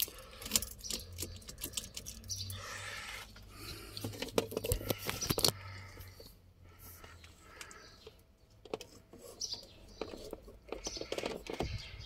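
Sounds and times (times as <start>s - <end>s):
keys rattling in ignition: 0.0s - 2.6s.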